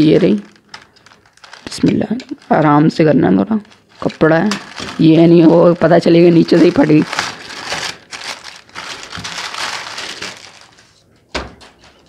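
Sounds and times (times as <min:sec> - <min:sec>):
plastic bag crinkling and tearing: 0:00.0 - 0:11.1.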